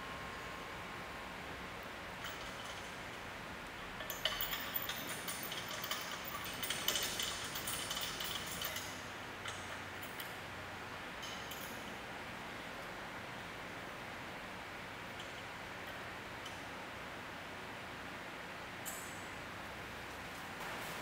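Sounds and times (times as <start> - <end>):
metal bolts clinking on table: 4.0 - 10.3.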